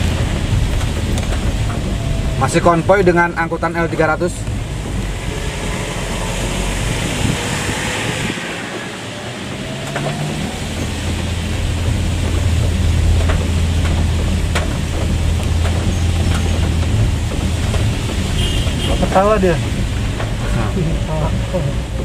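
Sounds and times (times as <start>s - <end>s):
car engine rumble: 0.0s - 22.0s
road noise inside car: 0.0s - 22.0s.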